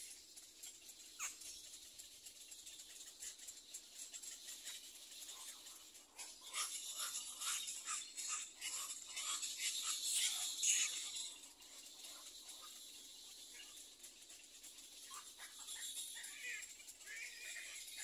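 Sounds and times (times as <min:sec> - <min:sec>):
rasping rattling bird calls: 0:00.0 - 0:18.0.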